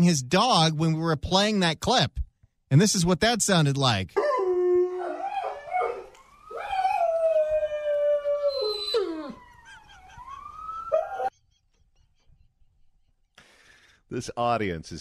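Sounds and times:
dog howling: 4.2 - 11.3.

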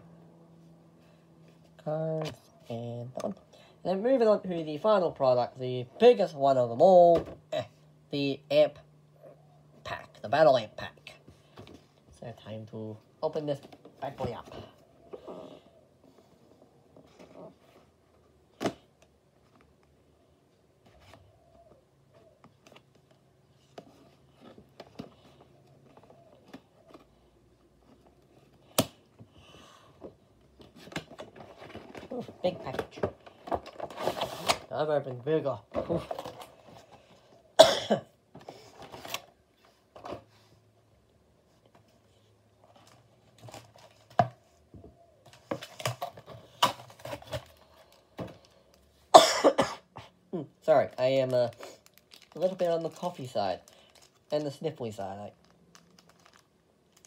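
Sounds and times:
packaging rustling: 50.7 - 57.0.

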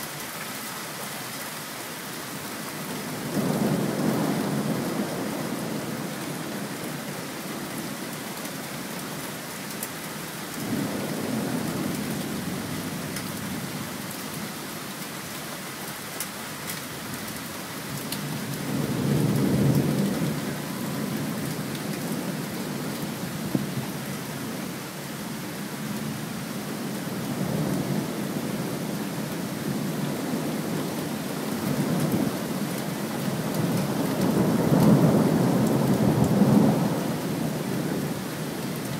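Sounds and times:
steady rain hiss: 0.0 - 38.9.

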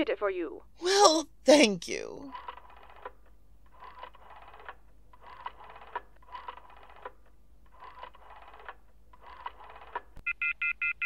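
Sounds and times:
rotary telephone dial whirring clicks: 2.4 - 10.2.

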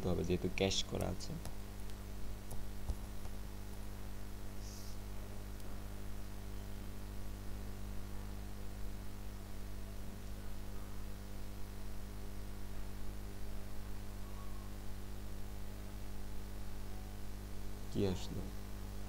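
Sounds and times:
low electrical hum: 0.0 - 19.0
steady hiss: 4.5 - 5.1.

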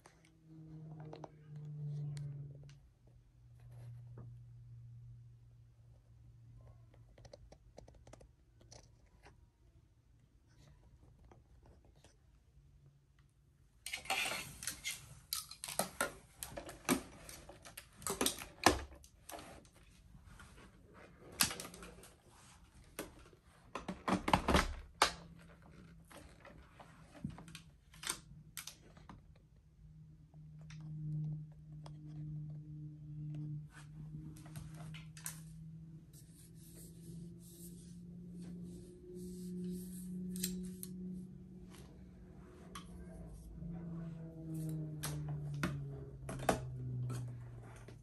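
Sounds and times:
plastic parts clicking and knocking: 13.9 - 19.1.

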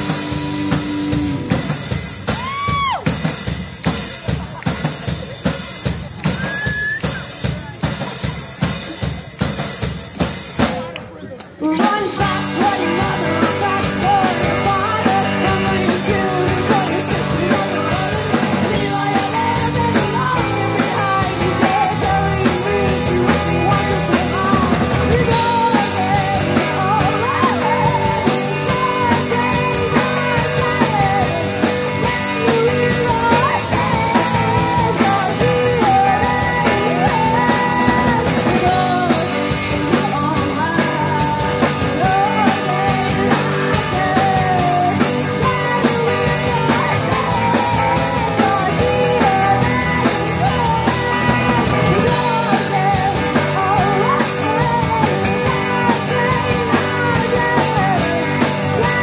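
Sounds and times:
electric guitars: 0.0 - 7.8, 8.5 - 59.0
drum kit: 0.0 - 59.0
woman singing: 11.5 - 59.0.

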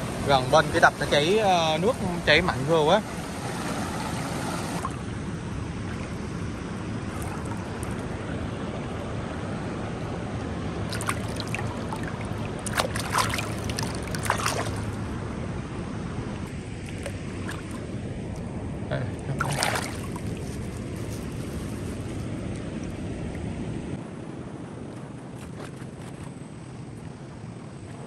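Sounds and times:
stream rushing over rocks: 0.0 - 4.9.

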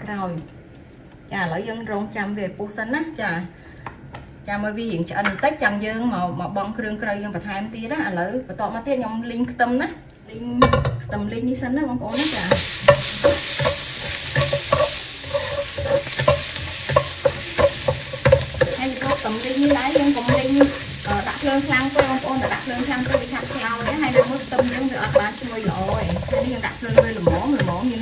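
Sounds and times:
garlic sizzling in oil: 12.1 - 28.0
spatula scraping and tapping pan: 12.1 - 28.0.

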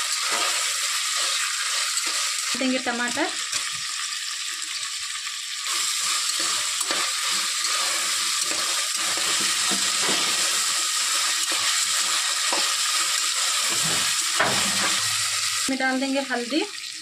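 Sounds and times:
vegetables sizzling in hot oil: 0.0 - 17.0
spatula scraping pot: 5.8 - 15.3.

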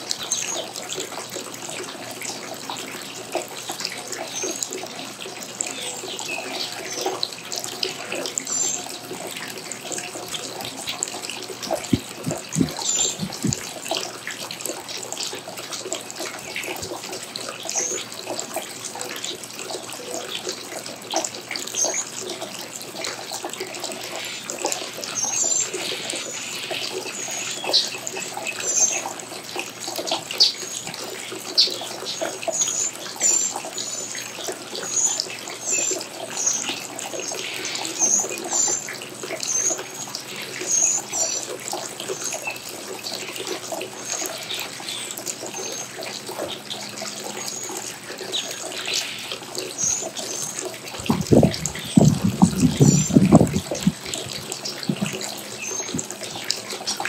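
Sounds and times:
small birds chirping: 11.6 - 14.0, 47.6 - 57.0.

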